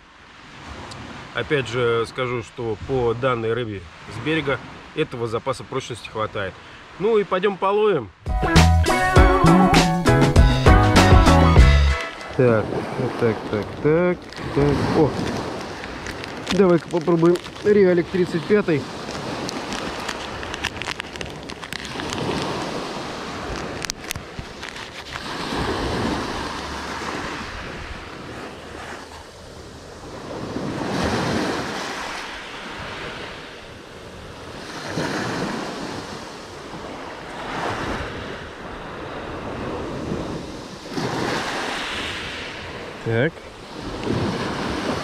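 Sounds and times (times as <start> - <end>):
small waves washing onto shore: 0.0 - 8.2, 11.9 - 45.0
wind on microphone: 12.1 - 45.0.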